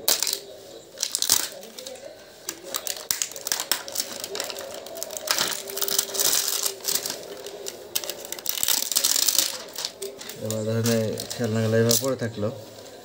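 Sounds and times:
plastic toy pieces clicking: 0:00.0 - 0:00.4, 0:01.0 - 0:12.1
plastic bag crinkling: 0:00.0 - 0:12.3.

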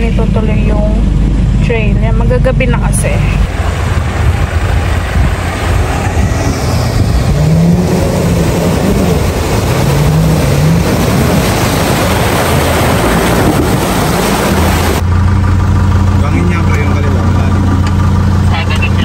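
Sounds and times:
truck engine revving: 0:00.0 - 0:19.0
water splashing around wheels: 0:02.8 - 0:19.0.

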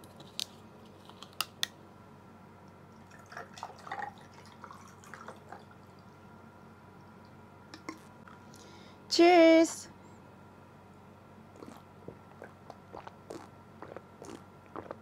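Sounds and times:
drink pouring into glass: 0:03.0 - 0:05.9.

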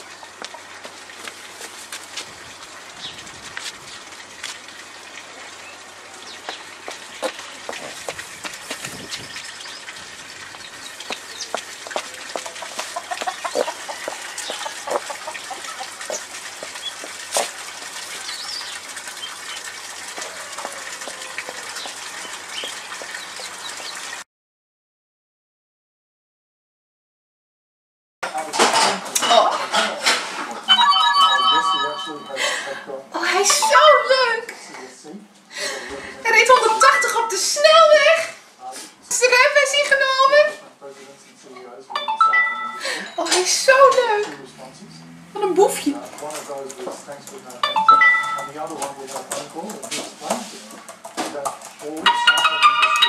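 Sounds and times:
chickens clucking: 0:00.0 - 0:01.8, 0:06.4 - 0:24.1
clicks and rustles: 0:48.4 - 0:52.0.

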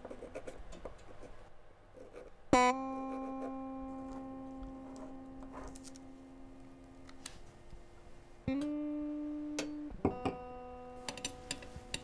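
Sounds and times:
guitar note ringing: 0:02.5 - 0:07.0, 0:08.4 - 0:12.0.

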